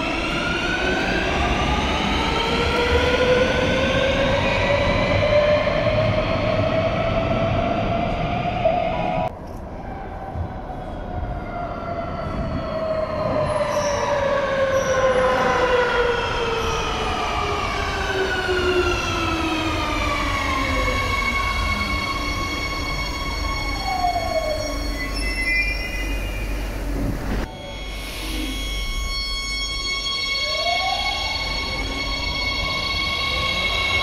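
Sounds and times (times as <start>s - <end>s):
train braking whine: 12.0s - 34.0s
train rumble: 26.1s - 29.0s
short high tones: 27.5s - 30.7s.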